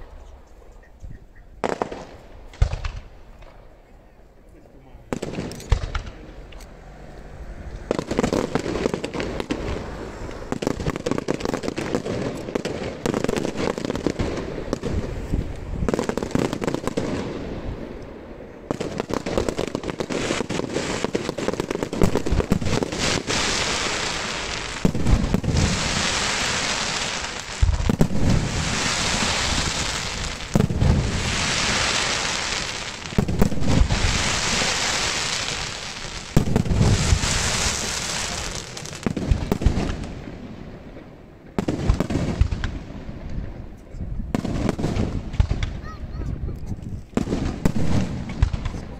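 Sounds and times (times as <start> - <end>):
fireworks crackling pops: 1.6 - 3.7, 5.1 - 6.7, 7.8 - 48.9
hissing crackle of burning stars: 18.8 - 40.1.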